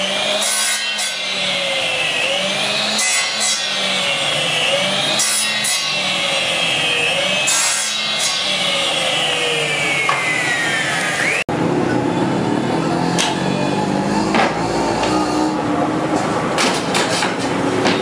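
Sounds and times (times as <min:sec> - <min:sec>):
power tool whining motor: 0:00.0 - 0:16.3
steady background noise: 0:08.8 - 0:18.0.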